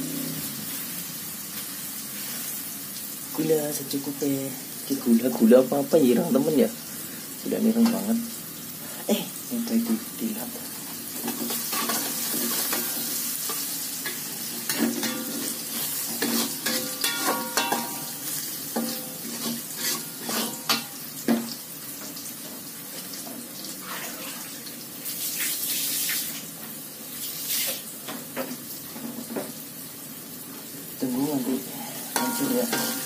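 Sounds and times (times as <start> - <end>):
food sizzling in oil: 0.0 - 33.0
metal spatula scraping a wok: 11.2 - 21.0, 32.0 - 33.0.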